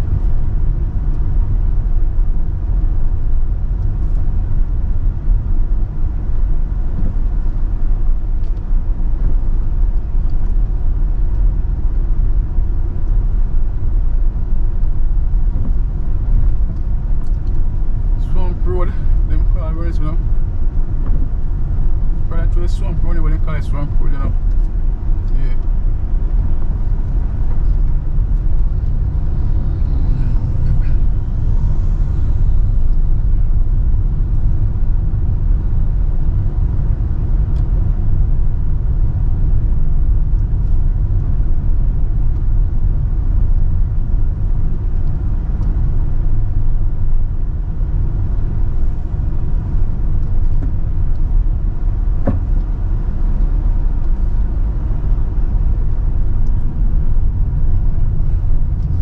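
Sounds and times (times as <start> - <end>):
car driving on dirt road: 0.0 - 59.0
tyre and engine rumble: 0.0 - 59.0.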